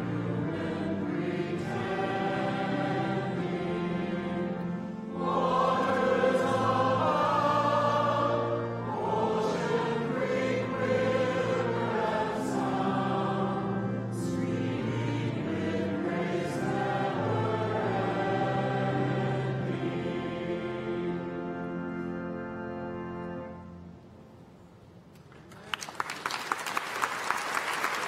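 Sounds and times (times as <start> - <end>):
crowd singing a hymn: 0.0 - 22.4.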